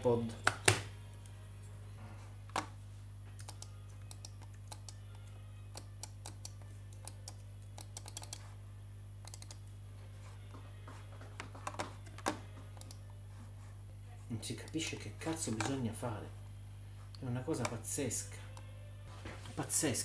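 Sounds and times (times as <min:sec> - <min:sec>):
low electrical hum: 0:00.0 - 0:20.0
keyboard clicks: 0:03.4 - 0:05.0, 0:05.7 - 0:08.4, 0:09.2 - 0:09.6, 0:11.7 - 0:13.0.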